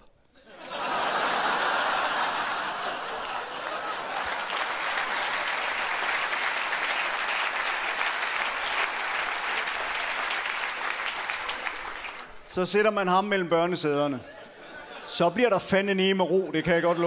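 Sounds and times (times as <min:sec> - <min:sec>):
audience applauding: 0:00.8 - 0:12.5.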